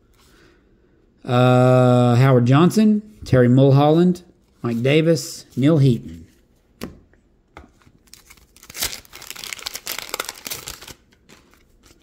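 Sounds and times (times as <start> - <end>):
wax paper wrapper tearing and crinkling: 8.0 - 12.0.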